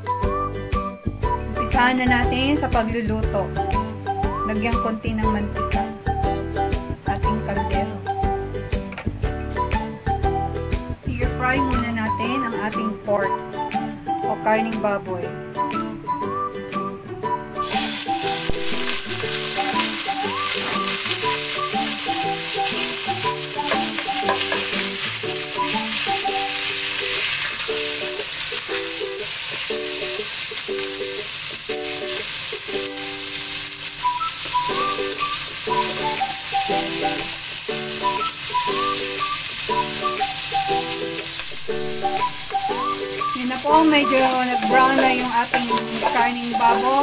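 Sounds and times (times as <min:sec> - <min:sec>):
background music: 0:00.0 - 0:47.0
meat sizzling in oil: 0:17.6 - 0:47.0
metal spoon stirring: 0:23.7 - 0:30.8.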